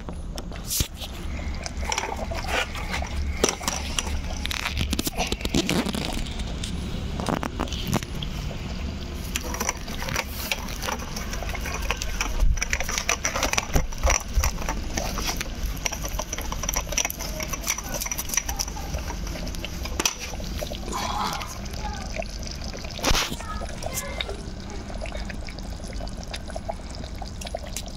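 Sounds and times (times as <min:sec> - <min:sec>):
curry bubbling in pot: 0:00.0 - 0:27.9
wood fire crackling: 0:09.0 - 0:27.9.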